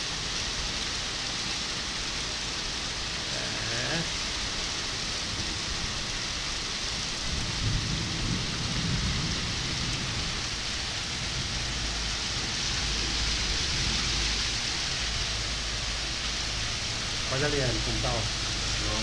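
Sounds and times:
heavy rain on paving: 0.0 - 19.0
thunder rumbling: 7.1 - 19.0.

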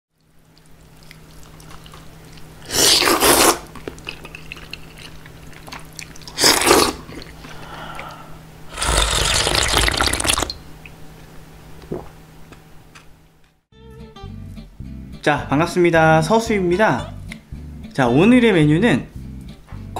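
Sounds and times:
low steady hum: 0.1 - 13.6
loud noodle slurps: 2.6 - 3.8, 6.2 - 7.4, 8.7 - 10.5.

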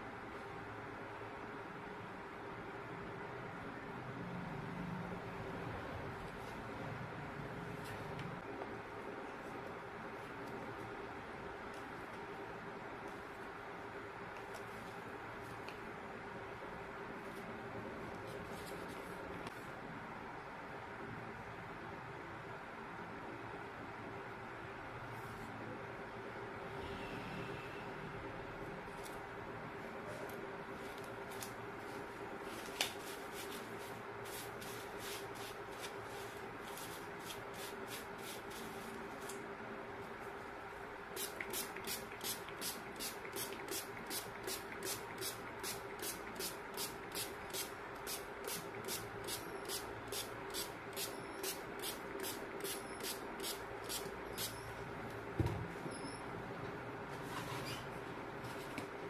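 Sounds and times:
thump: 55.4 - 55.7.

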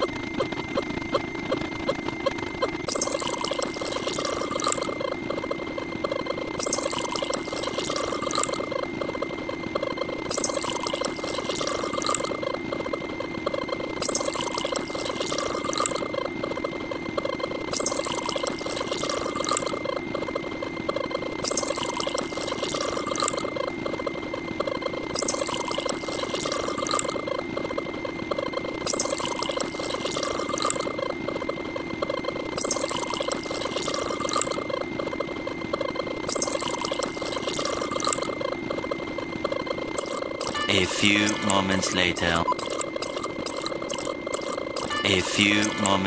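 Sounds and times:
looping sound effects: 2.8 - 46.0
pouring water: 6.6 - 8.6
steady high tone: 40.0 - 46.0.

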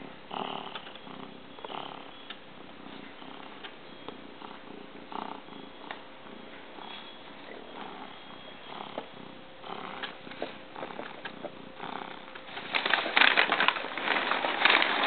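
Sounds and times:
cat purring: 0.0 - 15.0
packing paper crinkling: 12.4 - 15.0.

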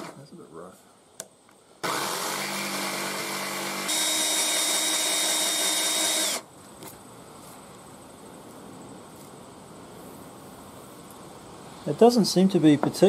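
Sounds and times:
jigsaw cutting metal plate: 1.8 - 6.4
electric drill whining through metal: 1.8 - 6.5.

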